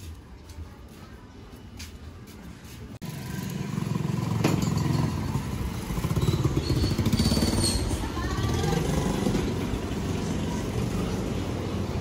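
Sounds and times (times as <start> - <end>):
motor scooter passing: 3.0 - 12.0.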